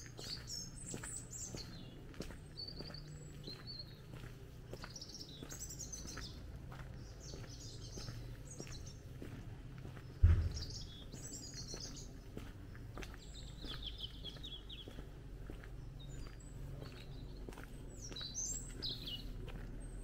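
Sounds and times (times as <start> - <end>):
songbirds singing: 0.0 - 20.0
sudden low thump: 10.2 - 11.0.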